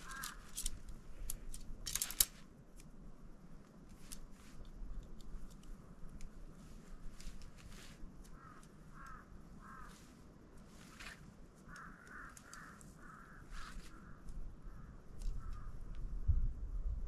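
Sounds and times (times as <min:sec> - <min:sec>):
crow cawing: 0:00.0 - 0:00.6, 0:08.3 - 0:10.1, 0:11.6 - 0:15.8
sharp clicks: 0:00.0 - 0:03.0, 0:11.0 - 0:13.2.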